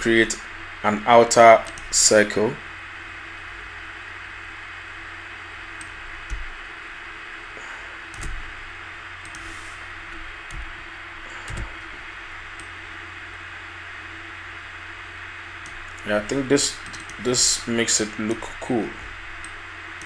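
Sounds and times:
faint hum: 0.0s - 20.0s
microphone hiss: 0.0s - 20.0s.

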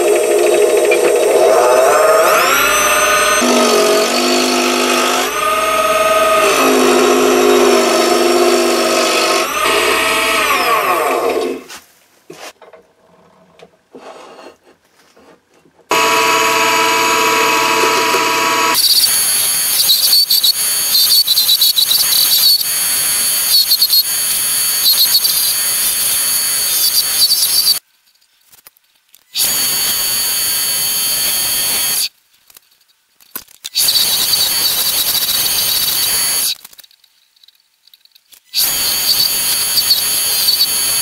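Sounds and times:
lathe motor whine: 0.0s - 11.6s, 15.9s - 21.0s
chisel scraping wood with squeal: 1.0s - 10.8s, 38.6s - 41.0s.

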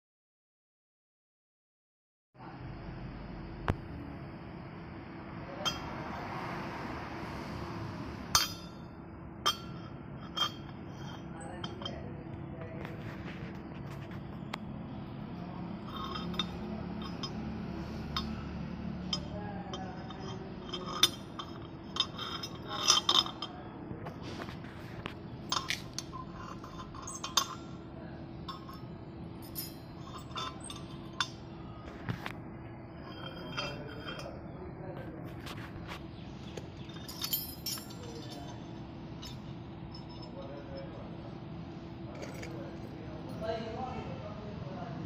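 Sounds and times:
steady low hum: 2.4s - 45.0s
metal chain links clinking: 15.8s - 23.6s, 25.5s - 27.7s, 28.5s - 31.4s, 36.6s - 40.6s.

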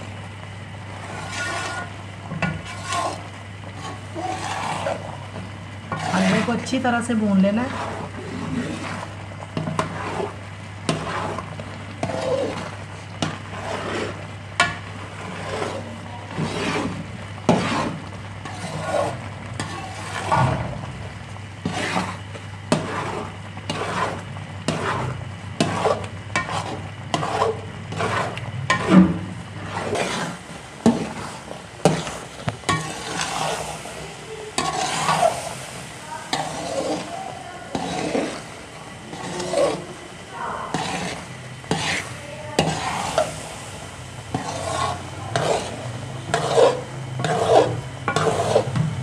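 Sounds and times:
food sizzling in fat: 0.0s - 49.0s
spatula scraping steel pot: 0.9s - 20.4s, 21.6s - 48.8s.

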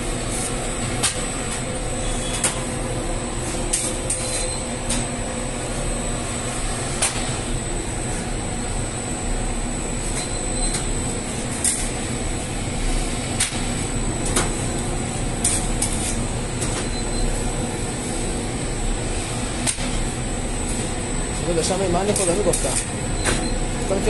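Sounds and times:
bakery machinery hum: 0.0s - 24.0s
thin high whine: 1.8s - 9.0s.

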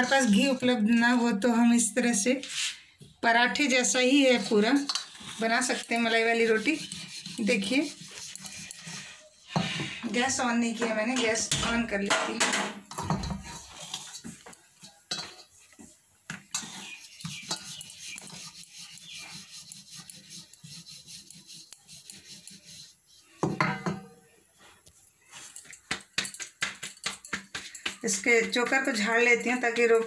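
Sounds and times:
rolling pin rolling dough on marble: 3.6s - 12.2s, 15.7s - 23.6s, 25.3s - 30.0s.

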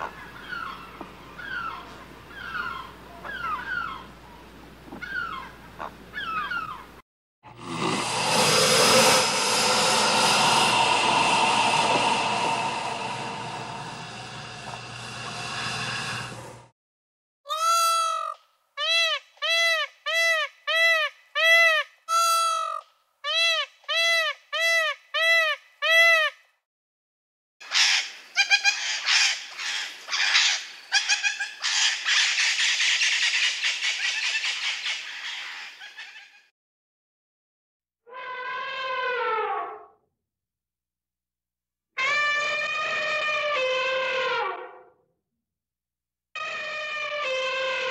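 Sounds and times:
loud rushing roar with hum: 7.7s - 16.7s.

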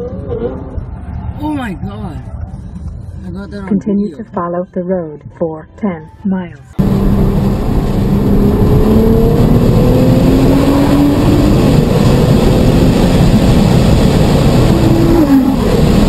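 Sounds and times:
wind and road noise: 0.0s - 16.0s
car engine accelerating: 6.8s - 16.0s.

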